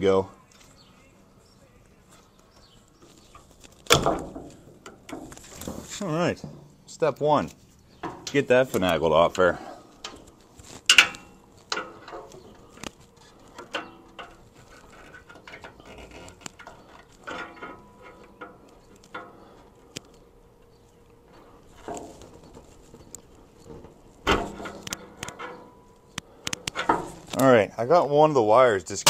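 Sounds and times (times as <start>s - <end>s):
small clicks and rustles: 10.0s - 27.5s.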